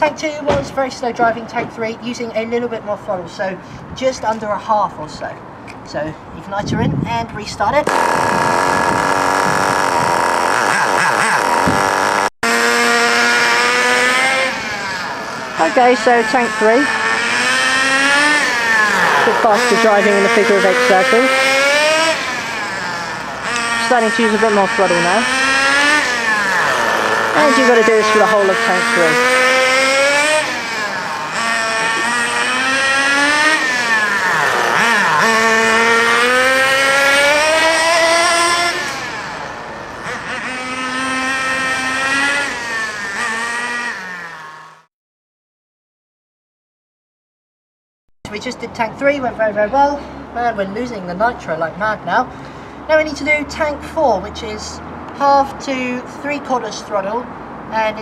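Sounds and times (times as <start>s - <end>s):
nitro engine running: 7.8s - 44.9s.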